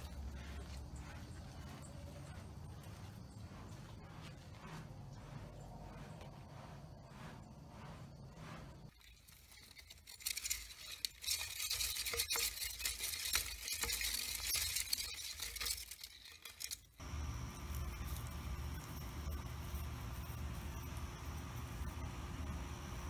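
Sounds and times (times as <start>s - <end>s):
low steady rumble: 0.0s - 8.9s, 17.0s - 23.0s
hamster wheel spinning: 8.9s - 23.0s.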